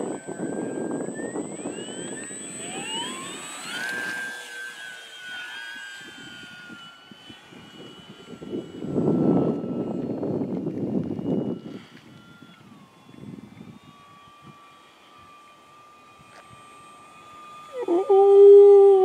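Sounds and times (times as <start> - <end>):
wind on microphone: 0.0 - 4.3, 6.0 - 14.6
model plane motor whine: 0.0 - 19.0.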